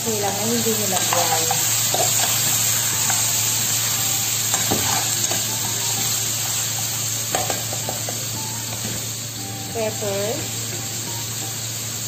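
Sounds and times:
meat sizzling in oil: 0.0 - 12.0
spatula scraping and knocking pan: 4.5 - 5.4.

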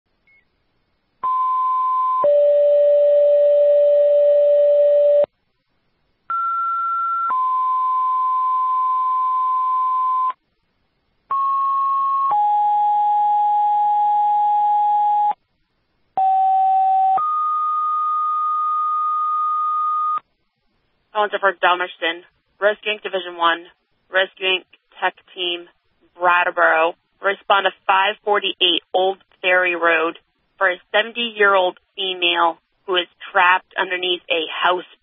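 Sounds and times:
two-tone paging tones: 1.2 - 5.3.

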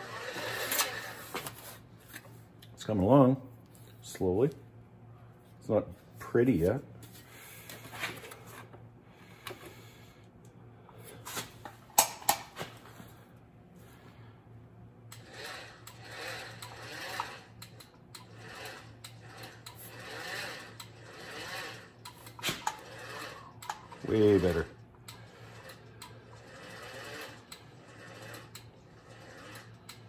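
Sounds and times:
sheet metal scraping rasp: 0.0 - 1.5.

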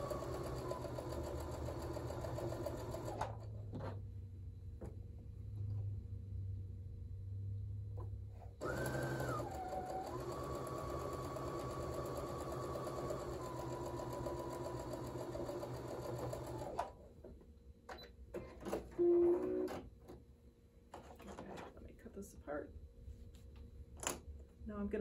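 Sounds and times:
sewing machine motor whine: 0.0 - 3.4, 8.6 - 17.0.

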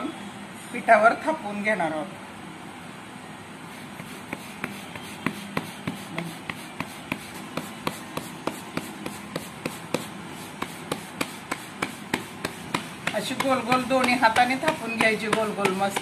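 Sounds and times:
hands slapping dough flat: 4.0 - 16.0.

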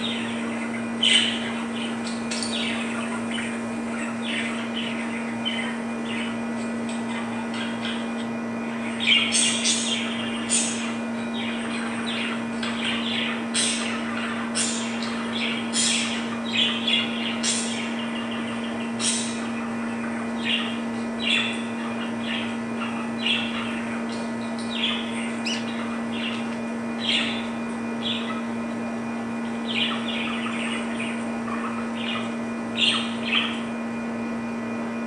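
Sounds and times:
budgerigars chirping: 0.0 - 28.6, 29.4 - 33.7
steady low hum: 0.0 - 35.0.

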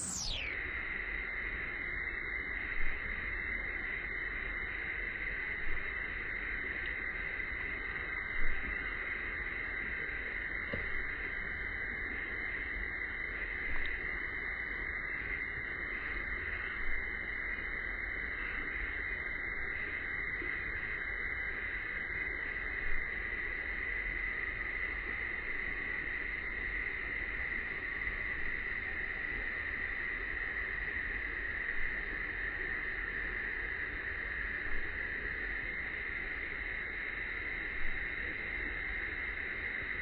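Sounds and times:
cicadas buzzing: 0.0 - 0.4.

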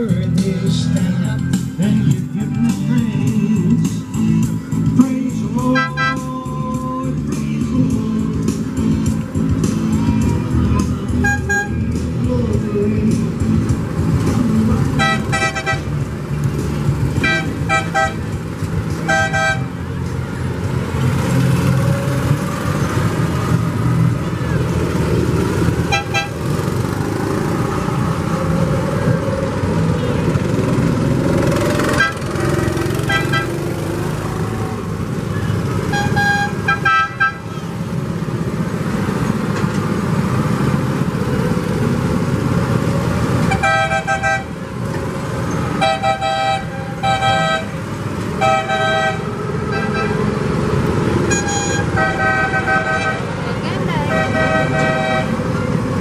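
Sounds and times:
vehicle engines running low: 0.0 - 56.0
car horn toots: 5.6 - 6.3, 11.1 - 11.8, 15.0 - 15.9, 17.2 - 18.3, 19.0 - 19.7, 25.9 - 26.4, 31.9 - 32.3, 33.0 - 33.6, 35.9 - 37.5, 43.4 - 44.5, 45.8 - 47.8, 48.4 - 50.3, 51.3 - 53.3, 54.1 - 55.4.

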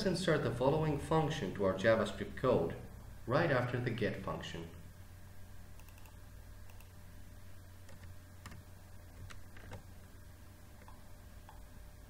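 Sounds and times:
low steady hum: 0.0 - 12.0
computer keyboard or mouse clicks: 5.8 - 7.0.

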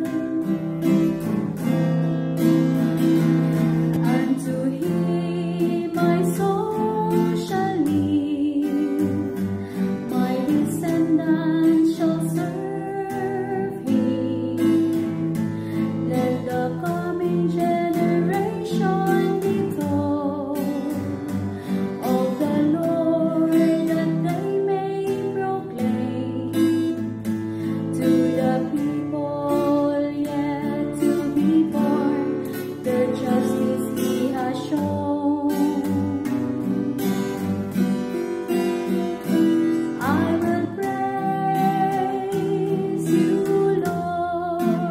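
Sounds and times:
strummed acoustic guitar: 0.0 - 44.9
person singing psalm: 39.9 - 44.9.

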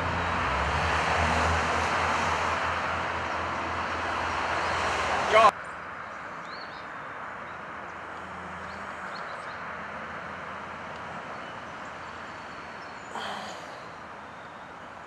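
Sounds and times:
distant road traffic hum: 0.0 - 15.0
faint bird chirps: 11.3 - 15.0.

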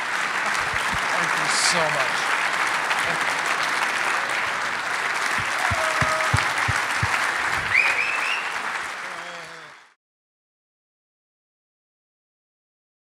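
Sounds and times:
audience applauding: 0.0 - 10.0
cheers: 0.0 - 10.0
low thumps: 5.4 - 7.8.

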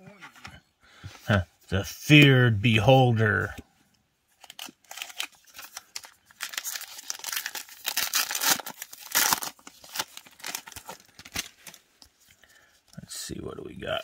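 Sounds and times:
foil wrapper tearing and crinkling: 4.4 - 11.8.

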